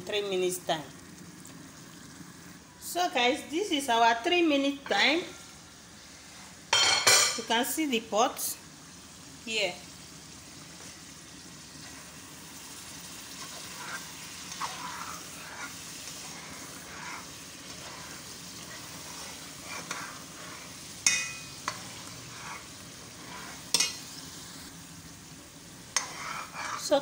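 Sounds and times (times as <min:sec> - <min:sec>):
sauce sizzling in metal pot: 0:00.0 - 0:27.0
metal spoon stirring and scraping: 0:13.0 - 0:24.2, 0:25.9 - 0:27.0
spoon knocking against pot: 0:21.0 - 0:21.5.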